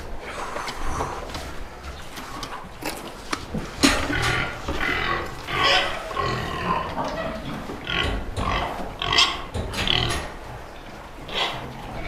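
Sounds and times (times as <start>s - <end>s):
pigs squealing: 4.2s - 10.3s, 11.3s - 12.0s.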